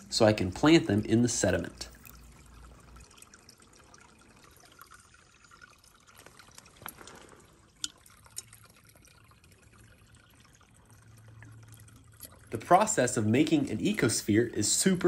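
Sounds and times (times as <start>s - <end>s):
brook trickling: 0.0s - 15.0s.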